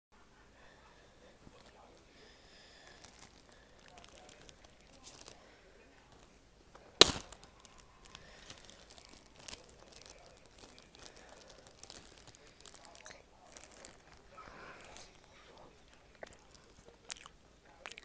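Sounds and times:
plastic bag crinkling: 1.5 - 17.2
sharp snap of plastic bag: 7.0 - 11.1.

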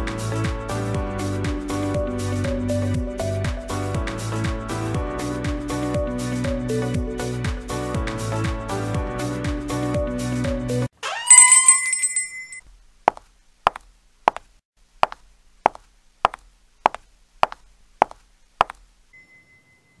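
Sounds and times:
bright chime: 11.2 - 12.6.

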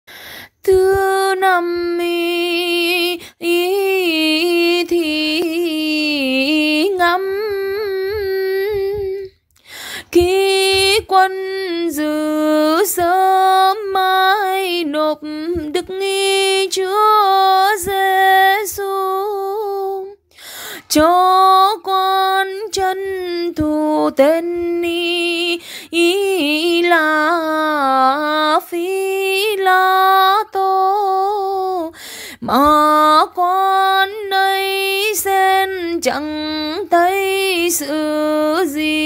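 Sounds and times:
woman chanting unaccompanied: 20.8 - 39.0.

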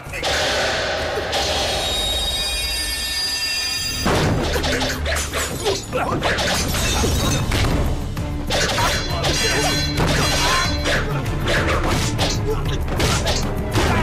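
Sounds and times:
dramatic background music: 0.0 - 14.0
punches and blows: 11.5 - 14.0.

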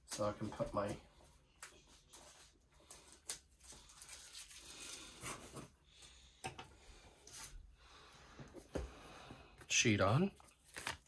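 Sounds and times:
plastic film crinkling: 2.8 - 5.3, 10.4 - 11.0.

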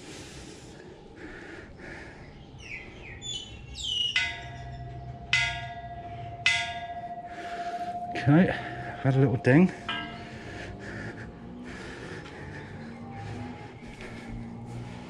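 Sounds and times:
high bird chirps: 2.3 - 10.5
temple bell ringing: 3.4 - 11.6.

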